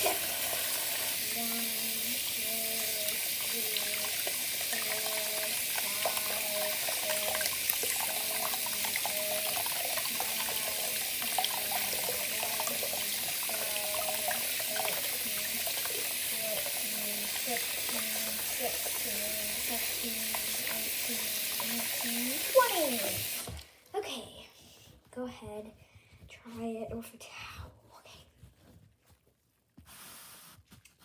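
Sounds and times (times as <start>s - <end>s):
tap water running into sink: 0.0s - 23.7s.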